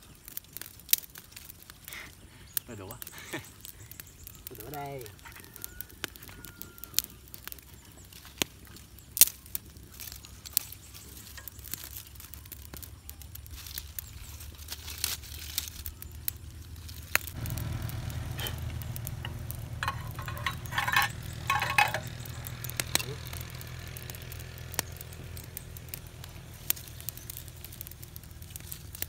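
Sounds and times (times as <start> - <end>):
wood fire crackling: 0.0 - 29.0
low steady hum: 15.9 - 28.4.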